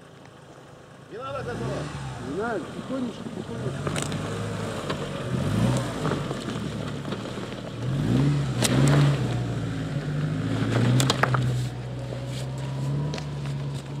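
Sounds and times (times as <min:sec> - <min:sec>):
car engine under load: 0:00.0 - 0:14.0.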